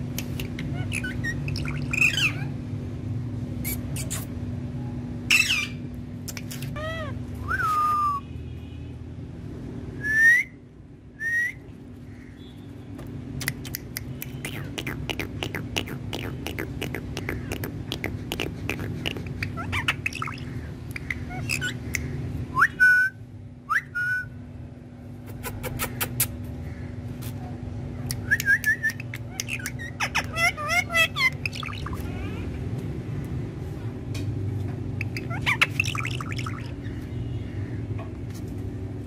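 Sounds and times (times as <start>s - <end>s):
steady low hum: 0.0s - 39.0s
parakeet whistled calls: 0.5s - 2.5s, 5.3s - 5.8s, 19.4s - 21.8s, 28.3s - 32.0s, 35.0s - 36.7s.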